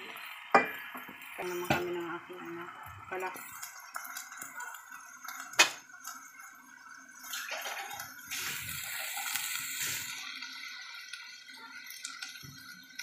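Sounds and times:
food sizzling and bubbling in a pot: 0.0 - 13.0
loud hiss: 8.3 - 10.3.

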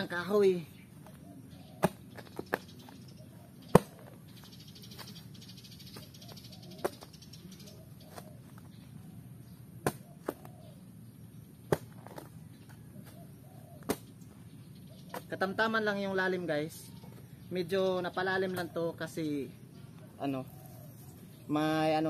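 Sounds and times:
spade chopping into soil and root: 1.8 - 2.7, 3.6 - 4.2, 9.8 - 10.5, 11.7 - 12.3, 13.8 - 14.1.

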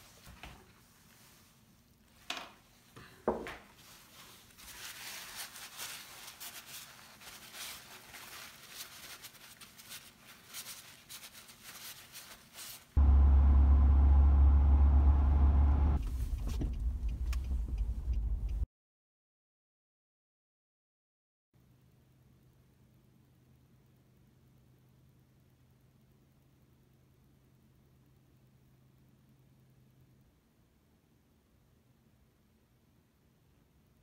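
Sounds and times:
paper towel rustling: 0.0 - 2.9, 3.6 - 13.0
car cabin low rumble: 13.0 - 18.6.

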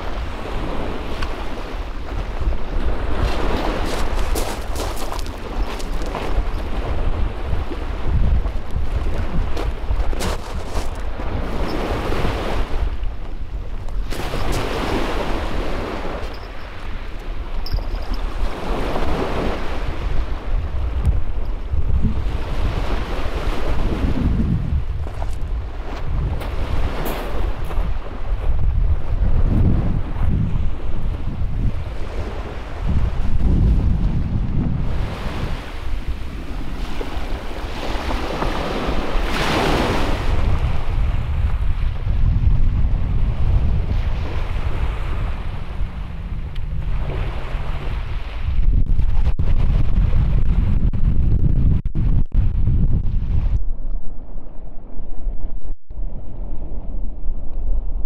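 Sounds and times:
small waves on shingle beach: 0.0 - 13.0, 13.9 - 17.5, 34.9 - 41.3
wind rumble on microphone: 0.0 - 58.0
small waves breaking on shingle: 3.1 - 6.7, 8.4 - 11.2.

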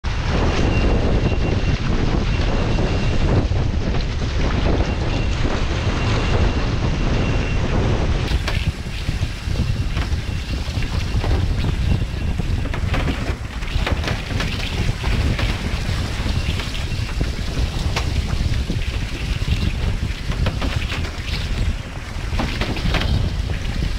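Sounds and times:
water rushing past hull: 0.0 - 23.9
wind buffeting microphone: 0.0 - 23.9
water spray and splashes: 8.0 - 23.9.

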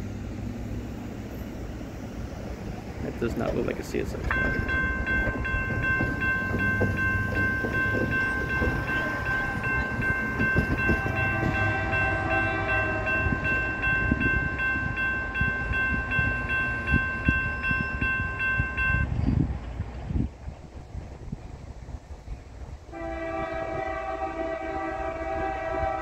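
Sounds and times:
locomotive horn long blast: 8.6 - 14.3, 22.9 - 26.0.

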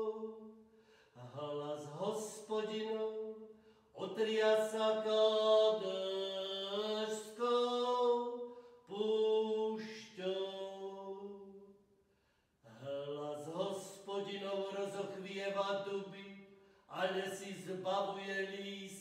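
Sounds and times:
man chanting psalm verses: 4.0 - 11.4, 12.6 - 19.0.

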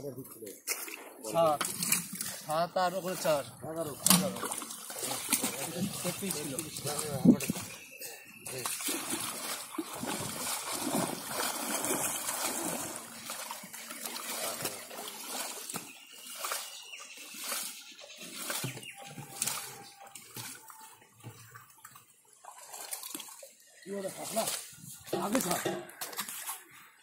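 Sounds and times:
water splashing and sloshing: 0.0 - 27.0.

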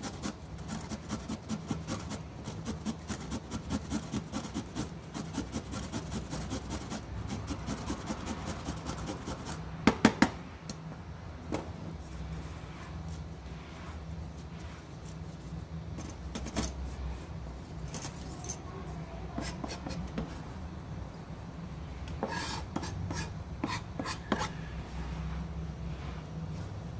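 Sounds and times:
carrot grating on a grater: 0.0 - 9.7, 22.2 - 24.6.

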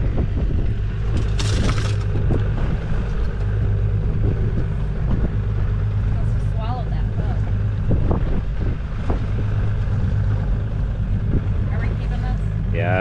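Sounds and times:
outboard motor idling: 0.0 - 13.0.

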